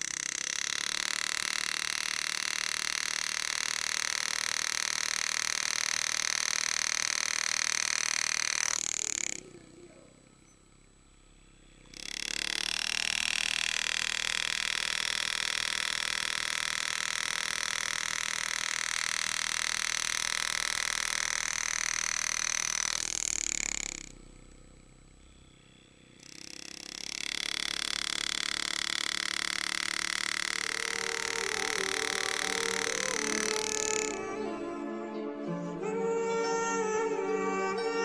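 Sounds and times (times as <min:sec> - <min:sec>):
engraving tool buzzing: 0:00.0 - 0:34.9, 0:35.8 - 0:38.0.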